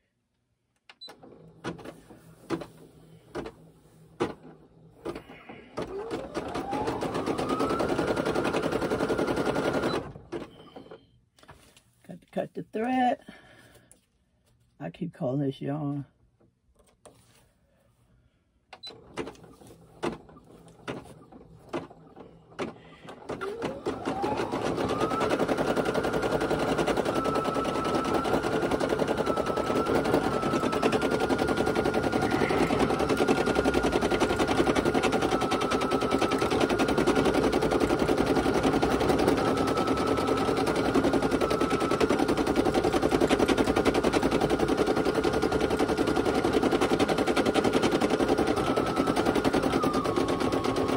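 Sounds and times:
embroidery machine stitching: 0:01.0 - 0:11.0, 0:18.8 - 0:50.9
embroidery machine motor whine: 0:23.5 - 0:37.6.

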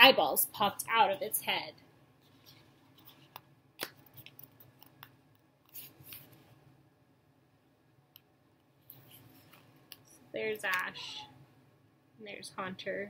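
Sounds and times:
book being handled: 0:02.2 - 0:05.0, 0:05.6 - 0:06.6, 0:08.9 - 0:10.0.

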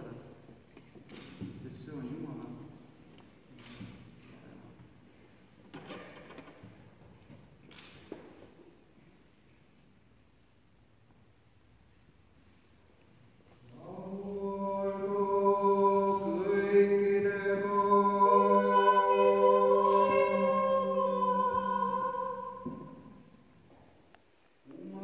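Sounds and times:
choir singing: 0:13.7 - 0:23.4.

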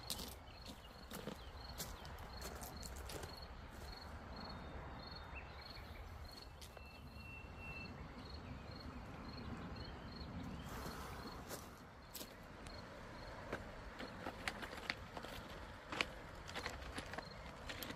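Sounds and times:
insect chirping: 0:00.0 - 0:14.2, 0:16.5 - 0:17.8
pebbles clicking underfoot: 0:13.4 - 0:17.9.

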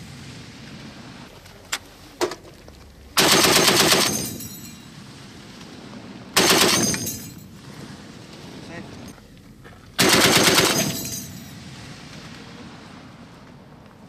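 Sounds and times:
heavy machine gun bursts: 0:03.2 - 0:04.8, 0:06.4 - 0:07.5, 0:10.0 - 0:11.4.

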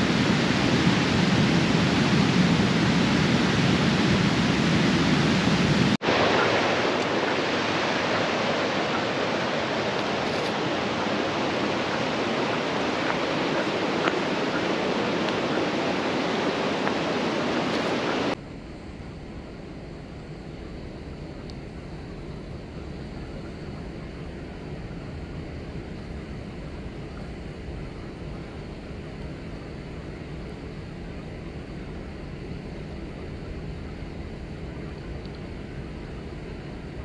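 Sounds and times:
river current rushing: 0:00.0 - 0:18.4.

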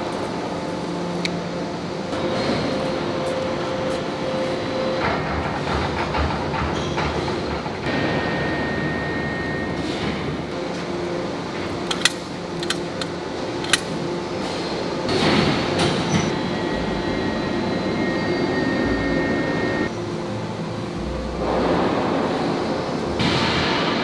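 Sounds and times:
heavy machinery noise: 0:00.0 - 0:24.0
faint high whine: 0:16.1 - 0:23.1.

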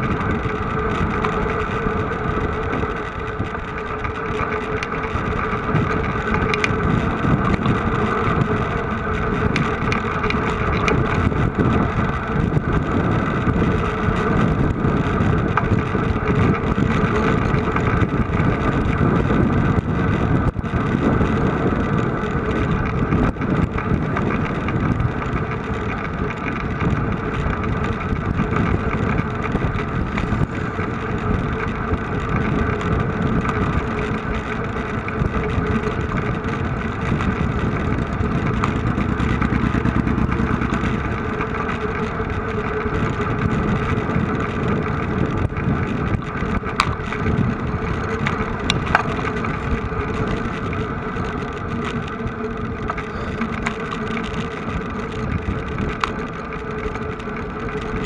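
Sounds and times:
vehicle engine running: 0:00.0 - 0:58.0.

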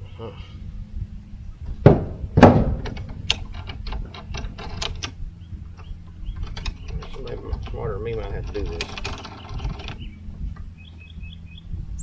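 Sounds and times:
handle tube knocks: 0:01.8 - 0:04.8
sharp plastic clicks: 0:02.8 - 0:05.2.

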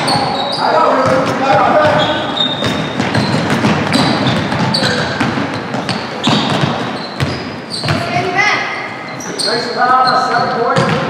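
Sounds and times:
game noise in a hall: 0:00.0 - 0:11.0
basketball bouncing on hardwood: 0:01.0 - 0:08.3, 0:10.8 - 0:11.0.

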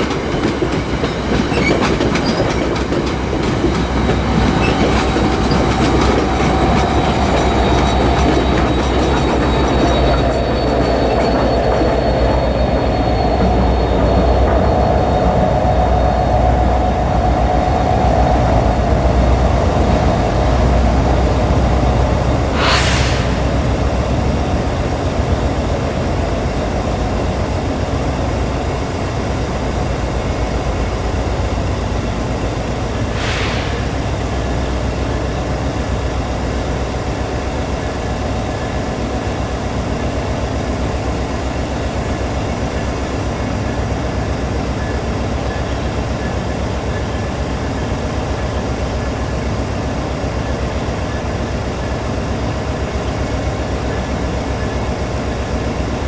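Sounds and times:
train locomotive rumbling: 0:00.0 - 0:56.0
short hiss: 0:22.6 - 0:23.4, 0:33.2 - 0:34.0.

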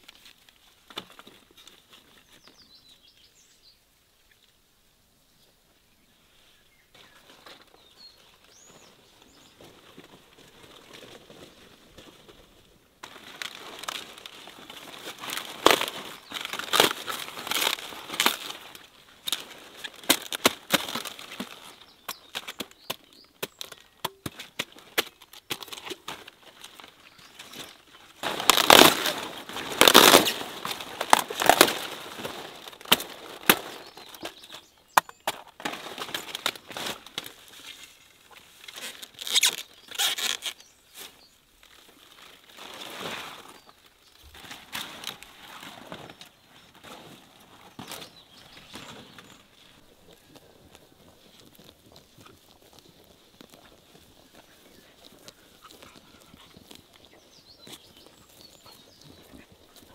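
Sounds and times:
leaves rustling: 0:06.2 - 0:23.8, 0:24.6 - 0:34.8, 0:35.5 - 0:59.9
knife cutting crunchy stems: 0:13.0 - 0:37.8.

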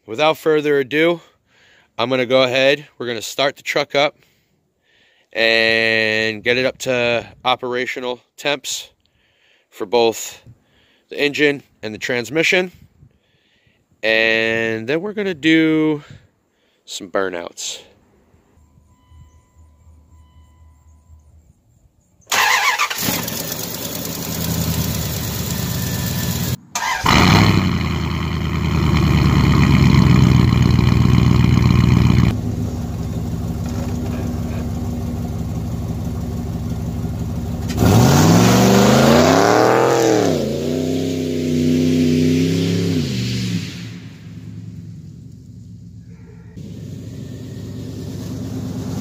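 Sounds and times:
engine revving: 0:22.3 - 0:49.0.

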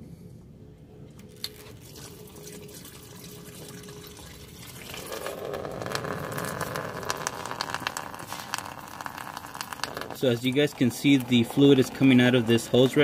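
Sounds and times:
liquid splashing and splattering: 0:01.3 - 0:05.4.

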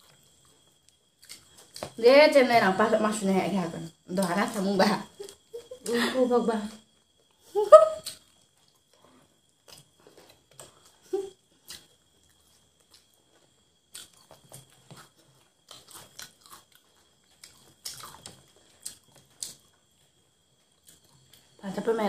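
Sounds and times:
chewing crunchy fried chicken: 0:00.0 - 0:02.0, 0:08.0 - 0:21.6.

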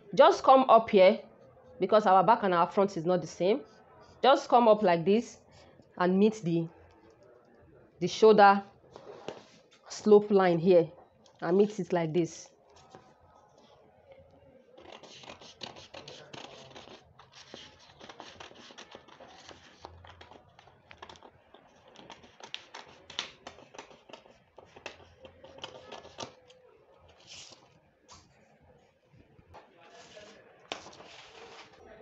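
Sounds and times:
scissors snipping paper: 0:14.8 - 0:20.4
paper rustling: 0:27.1 - 0:28.2, 0:29.9 - 0:31.8.

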